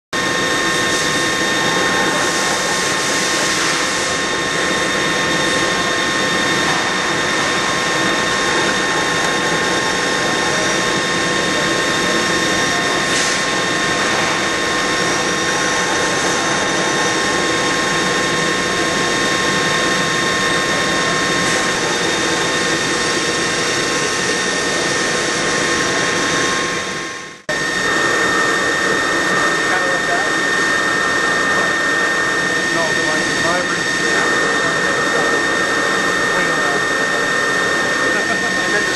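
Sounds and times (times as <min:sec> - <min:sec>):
lathe whine: 0:00.1 - 0:38.9
metal cutting hiss: 0:13.0 - 0:13.5.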